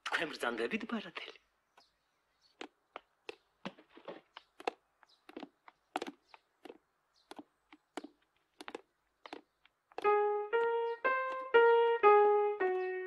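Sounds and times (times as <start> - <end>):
footsteps on wooden floor: 2.5 - 11.5.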